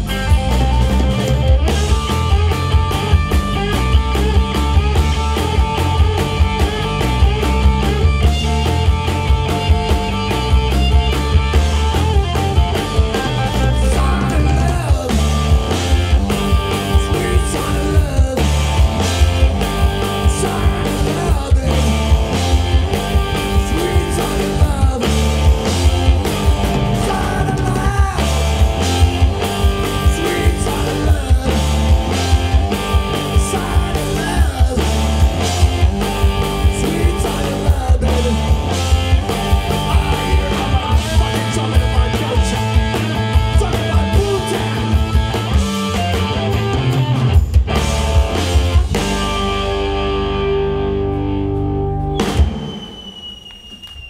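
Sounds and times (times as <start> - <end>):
electric guitars: 0.0 - 53.1
drum kit: 0.0 - 53.8
man singing: 12.8 - 45.4.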